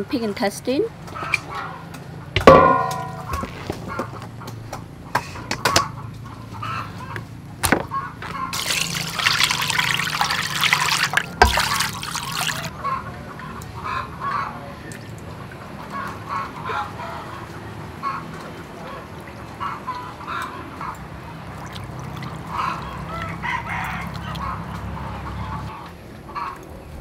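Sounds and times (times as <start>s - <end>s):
water pouring and splashing: 8.5s - 12.7s, 18.3s - 24.9s.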